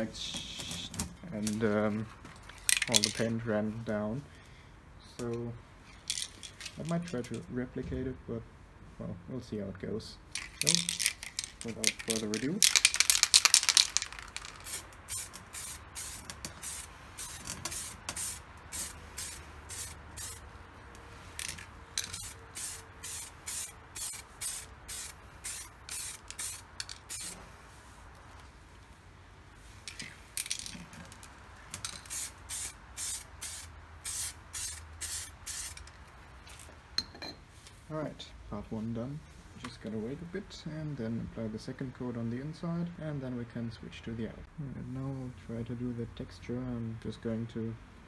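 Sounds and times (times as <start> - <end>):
spray paint can hissing: 10.4 - 20.5, 21.2 - 27.5, 29.8 - 35.9.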